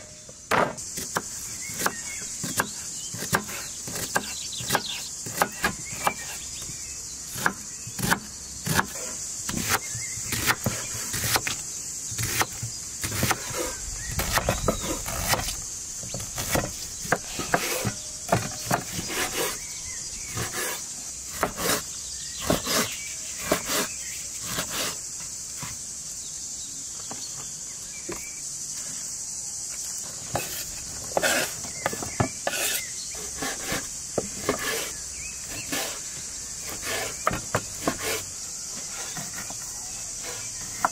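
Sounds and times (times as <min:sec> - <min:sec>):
high insect drone: 0:00.0 - 0:40.9
knife cutting on wooden board: 0:12.2 - 0:19.6, 0:20.3 - 0:21.8, 0:22.4 - 0:25.0, 0:30.3 - 0:36.0, 0:36.6 - 0:39.5.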